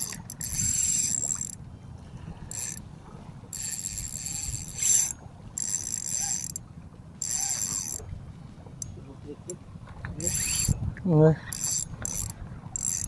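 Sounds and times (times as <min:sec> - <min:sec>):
fishing reel drag buzzing: 0:00.0 - 0:01.6, 0:02.5 - 0:02.8, 0:03.5 - 0:06.6, 0:07.2 - 0:08.0, 0:10.2 - 0:10.8, 0:11.5 - 0:13.0.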